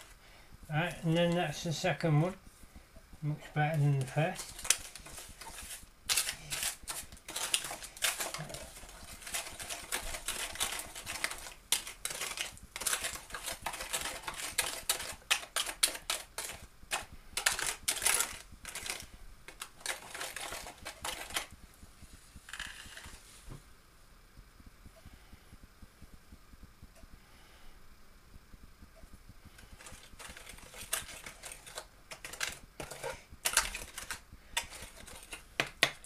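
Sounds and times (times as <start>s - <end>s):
metal spoon scraping foil tray: 3.6s - 21.5s, 29.8s - 35.5s.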